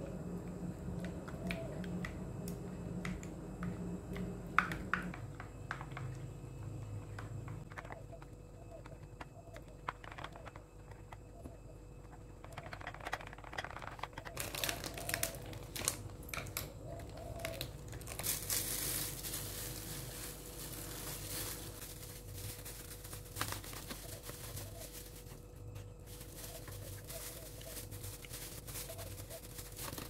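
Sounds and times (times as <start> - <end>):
packaging crinkling: 12.4 - 30.0.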